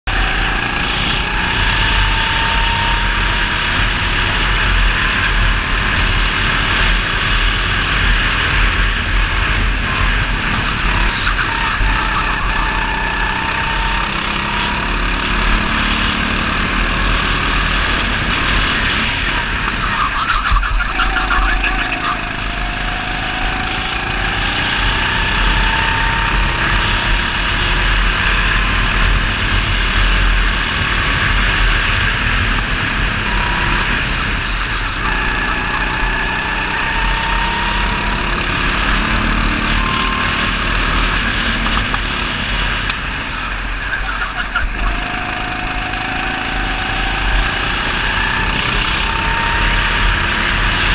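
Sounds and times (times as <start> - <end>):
go-kart engine running hard: 0.0 - 50.9.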